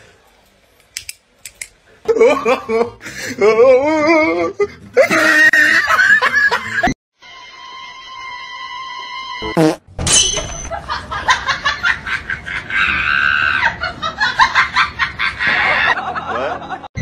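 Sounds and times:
shrill cackling laugh: 10.7 - 16.8
sustained scream: 12.7 - 13.8.

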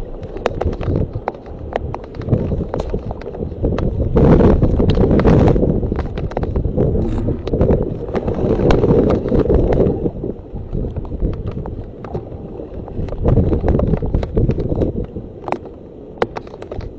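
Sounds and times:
wind buffeting microphone: 0.0 - 16.9
sharp clicks and knocks: 13.1 - 16.9.

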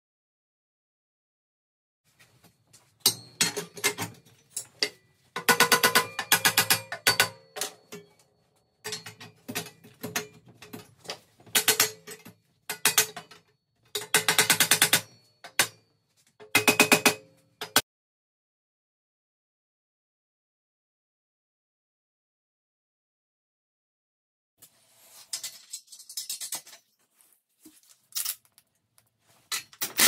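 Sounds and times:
metal tubes clinking and rattling: 3.0 - 8.2, 8.8 - 15.7, 25.2 - 27.0, 29.5 - 30.0.

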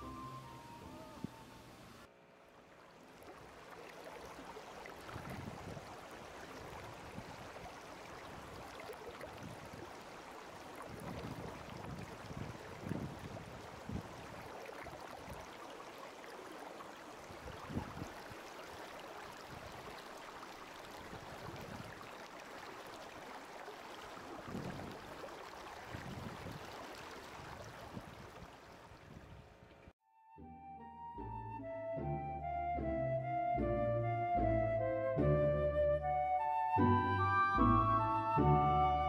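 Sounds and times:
soft music with held notes: 0.0 - 2.1, 30.0 - 39.0
rushing water: 0.0 - 29.9.

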